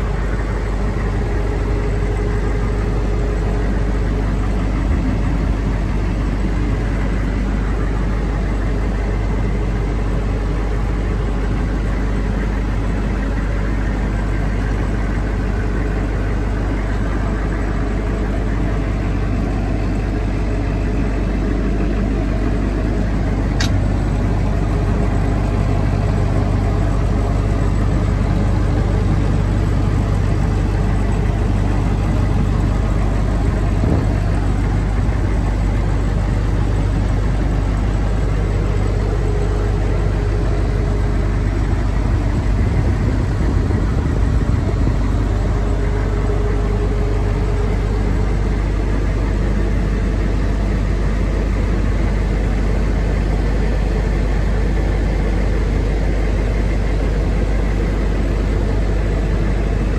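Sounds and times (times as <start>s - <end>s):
diesel engine idling: 0.0s - 59.9s
faint sharp click: 23.6s - 23.8s.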